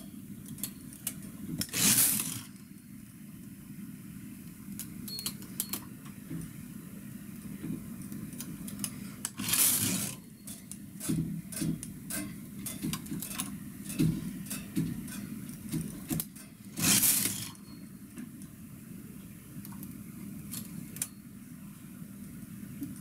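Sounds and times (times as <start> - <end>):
brief metal scrapes: 9.4 - 10.2, 16.8 - 17.6.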